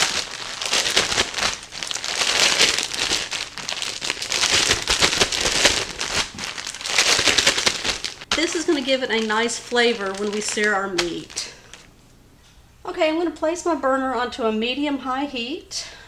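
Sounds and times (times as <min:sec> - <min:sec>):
plastic bag crinkling: 0:00.0 - 0:11.9.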